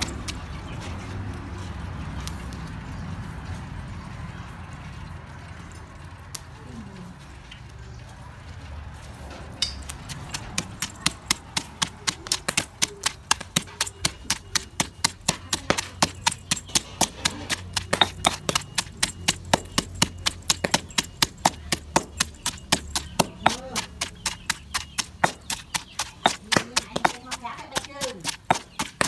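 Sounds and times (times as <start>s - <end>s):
pestle pounding in stone mortar: 10.0s - 29.0s.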